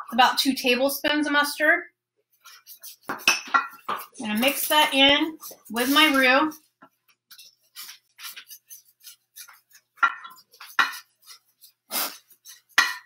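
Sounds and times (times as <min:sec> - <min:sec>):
whisk scraping a saucepan: 0:02.4 - 0:06.7, 0:07.3 - 0:13.0.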